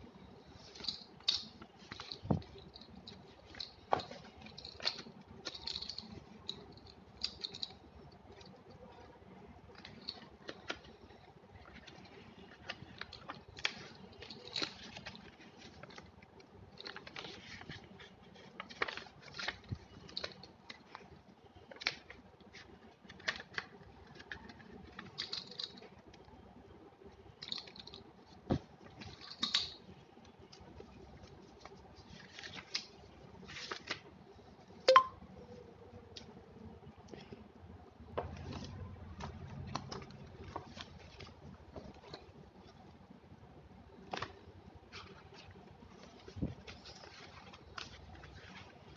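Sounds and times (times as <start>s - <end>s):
paper rustling: 0.5s - 7.7s, 9.6s - 26.0s, 30.5s - 34.6s, 44.0s - 48.9s
plastic items clicking and tapping: 0.8s - 8.6s, 9.7s - 17.9s, 18.5s - 26.2s.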